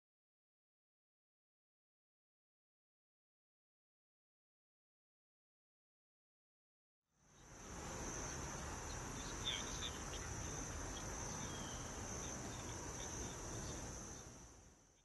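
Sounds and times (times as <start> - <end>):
high-pitched insect trill: 7.3 - 14.6.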